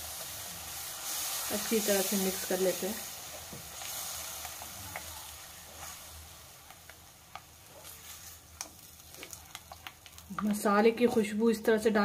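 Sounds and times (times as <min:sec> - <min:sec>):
paste sizzling in a pan: 0:00.0 - 0:11.4.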